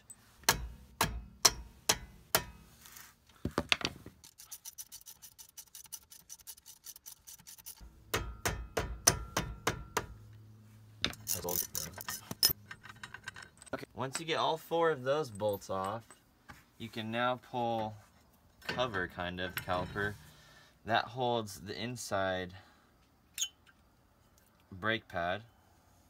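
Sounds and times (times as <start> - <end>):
ratchet clicking: 4.2 - 7.8
mallet knocking on wrench: 8.1 - 10.2.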